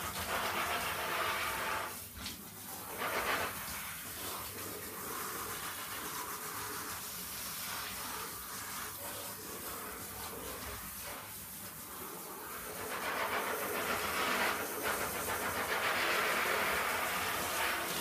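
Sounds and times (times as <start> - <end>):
shower head spraying water: 0.0 - 18.0.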